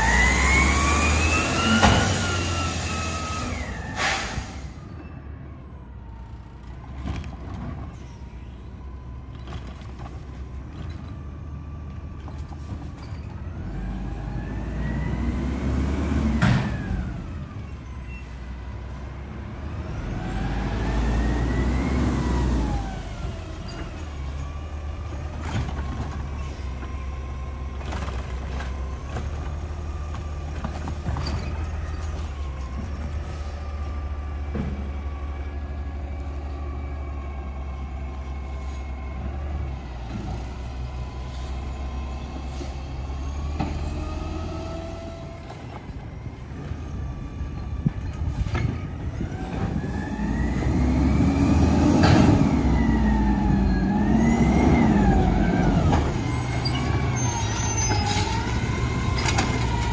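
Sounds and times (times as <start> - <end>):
truck engine revving: 0.0 - 4.8, 13.5 - 17.5, 19.3 - 45.7, 49.0 - 59.9.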